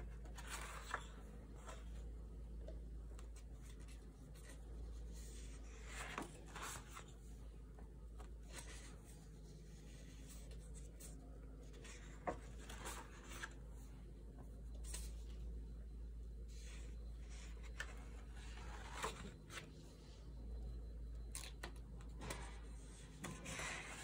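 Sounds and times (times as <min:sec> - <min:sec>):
paper rustling: 0:00.0 - 0:02.1, 0:03.2 - 0:07.2, 0:09.8 - 0:13.6
low steady hum: 0:00.0 - 0:24.0.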